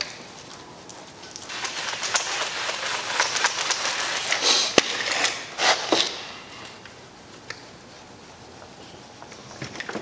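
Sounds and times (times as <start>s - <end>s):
hand-pump sprayer spraying liquid: 1.5s - 6.2s.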